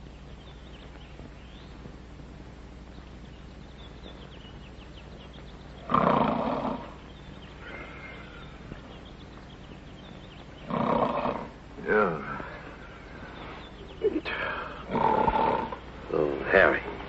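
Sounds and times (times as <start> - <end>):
faint breath out: 7.6 - 8.7, 14.3 - 14.9.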